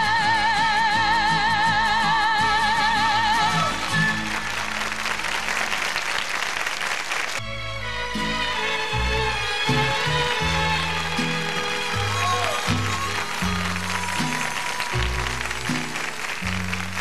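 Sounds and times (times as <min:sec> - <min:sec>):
woman singing with vibrato: 0:00.0 - 0:04.0
audience applause: 0:03.4 - 0:07.4, 0:08.5 - 0:17.0
instrumental song intro: 0:07.4 - 0:17.0
orchestral accompaniment: 0:07.4 - 0:17.0.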